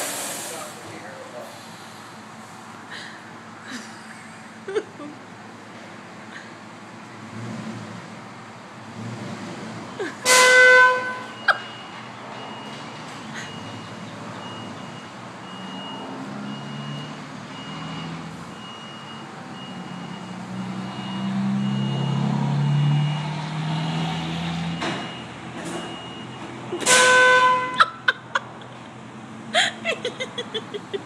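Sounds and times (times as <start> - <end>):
short horn toots: 10.2 - 11.4, 26.8 - 27.8
vehicle horn honking: 10.2 - 11.4, 26.8 - 28.0.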